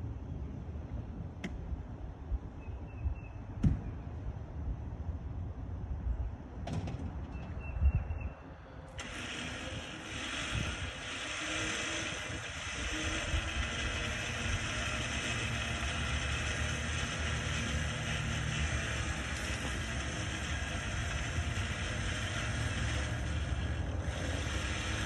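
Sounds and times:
electric winch running under load: 0:08.8 - 0:25.0
truck engine running: 0:08.9 - 0:25.0.

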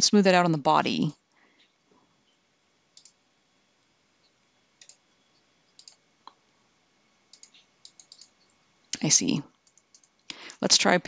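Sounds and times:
faint computer mouse clicks: 0:03.0 - 0:03.2, 0:04.8 - 0:05.0, 0:05.7 - 0:06.4, 0:07.3 - 0:08.4, 0:09.6 - 0:10.4.

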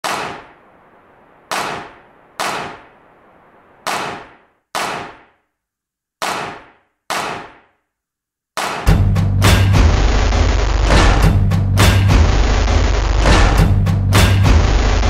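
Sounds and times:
clanging percussion hits: 0:08.8 - 0:15.0.

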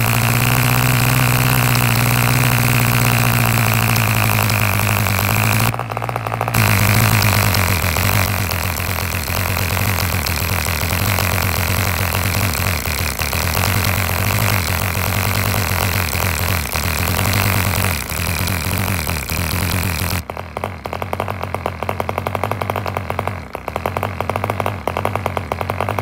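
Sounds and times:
model diesel engine running fast: 0:00.0 - 0:26.0.

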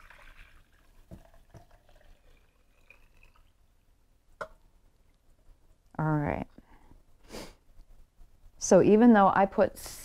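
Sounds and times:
tea pouring into a glass cup: 0:00.0 - 0:03.6.

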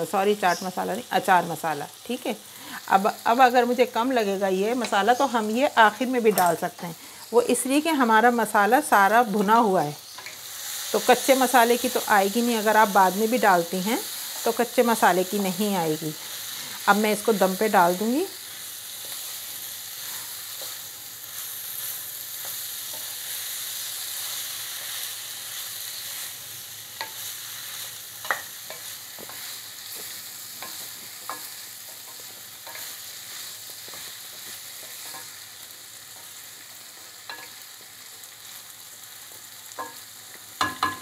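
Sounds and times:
okra sizzling in a pan: 0:00.0 - 0:41.0
spoon knocking against pan: 0:40.6 - 0:41.0.

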